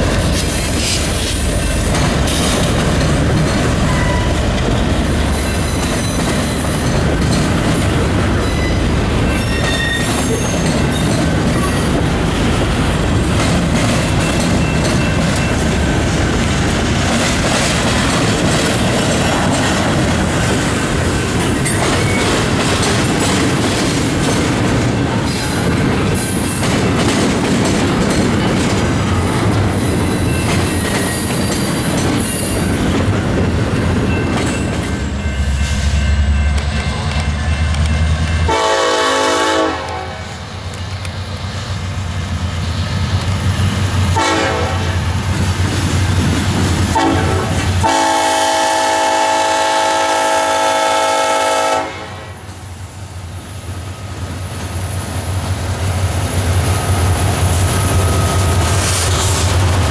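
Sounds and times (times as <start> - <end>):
wheels clicking over rail joints: 0.0 - 35.2
train cars rolling past: 0.0 - 59.9
wheels squealing: 8.4 - 11.9.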